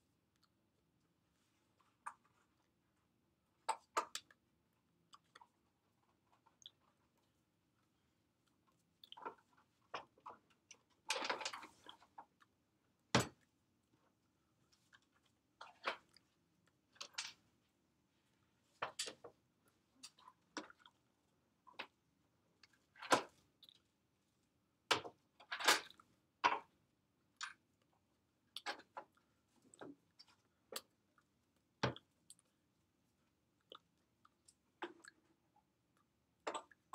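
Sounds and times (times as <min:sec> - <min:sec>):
mouth clicks and smacks: 0:33.6 - 0:35.3.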